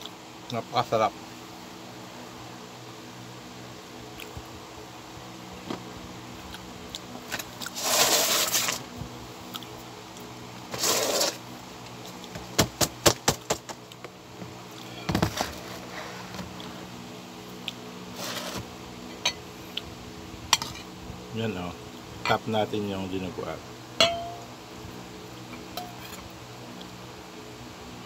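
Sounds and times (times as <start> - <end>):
steady low hum: 0.0 - 28.0
cutlery scraping: 18.2 - 19.4, 25.8 - 26.2
bowl knock: 24.0 - 24.4.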